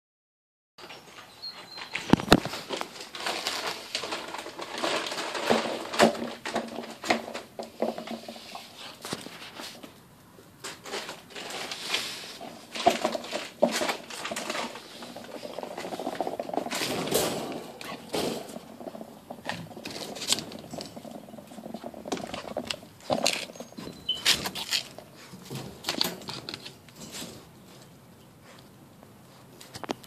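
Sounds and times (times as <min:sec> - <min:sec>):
plastic bag and tarp rustling: 0:01.9 - 0:09.9, 0:10.6 - 0:27.6
claws scrabbling on hard floor: 0:02.0 - 0:10.0, 0:10.6 - 0:28.6.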